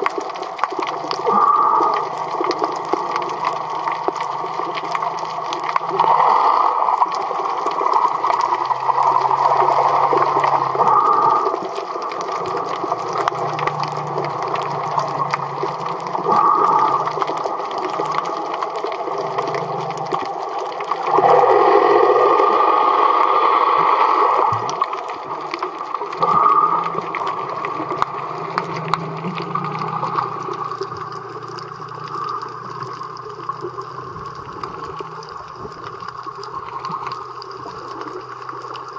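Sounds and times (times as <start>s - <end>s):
underwater water rushing and gurgling: 0.0s - 38.9s.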